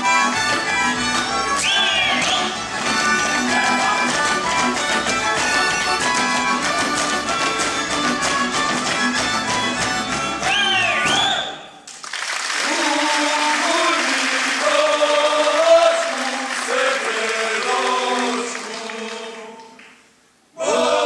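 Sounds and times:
fiddle band playing dance tune: 0:00.0 - 0:11.4
men singing unaccompanied: 0:03.4 - 0:04.2, 0:12.6 - 0:19.7
applause: 0:06.0 - 0:20.0.

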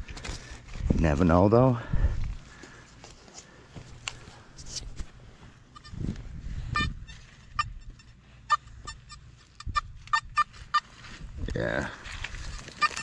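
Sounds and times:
metal detector beeps: 0:06.6 - 0:10.9, 0:12.4 - 0:13.0.

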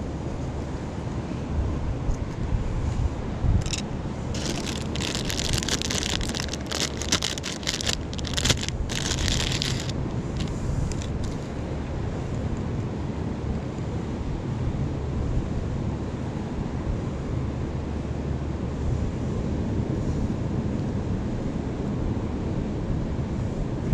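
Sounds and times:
wind on microphone: 0:00.0 - 0:11.5
plastic packet crinkling: 0:03.6 - 0:11.2.

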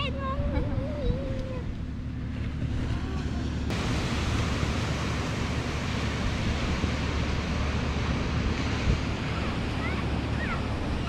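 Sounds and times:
wind buffeting microphone: 0:00.0 - 0:11.0
sea surf washing onto beach: 0:02.8 - 0:11.0.

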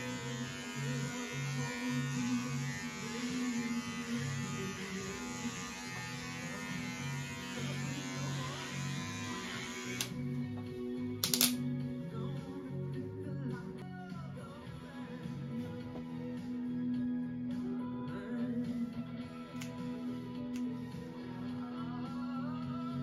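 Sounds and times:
electric hair clippers buzzing: 0:00.0 - 0:10.3.

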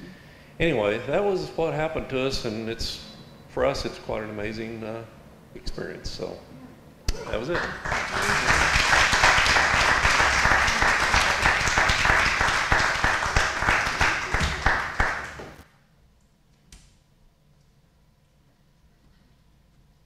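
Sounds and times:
crowd applauding: 0:07.3 - 0:15.6.

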